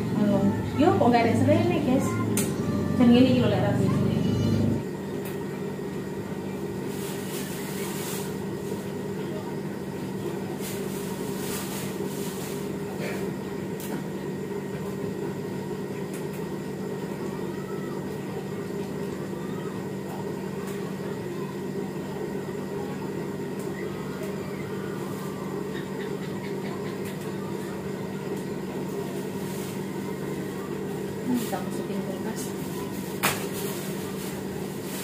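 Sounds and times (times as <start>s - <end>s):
washing machine spinning: 0.0s - 35.0s
plastic bag rustling: 6.8s - 8.9s, 10.5s - 12.8s, 28.9s - 30.6s, 31.2s - 35.0s.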